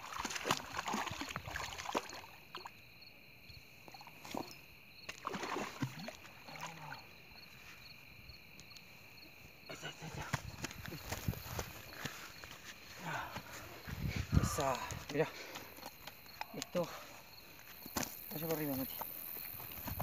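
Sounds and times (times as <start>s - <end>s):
fish splashing in water: 0.0s - 2.7s, 5.1s - 7.0s.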